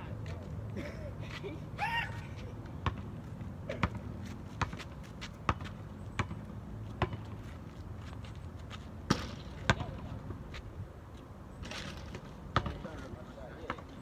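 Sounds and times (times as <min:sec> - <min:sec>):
basketball bouncing on asphalt: 0:02.7 - 0:10.7, 0:11.6 - 0:13.0, 0:13.6 - 0:14.0.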